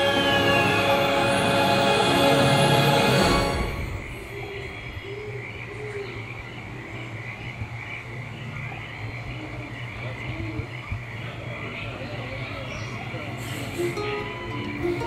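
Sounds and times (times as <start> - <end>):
orchestral music: 0.0 - 4.8
birds chirping and warbling: 3.2 - 15.0.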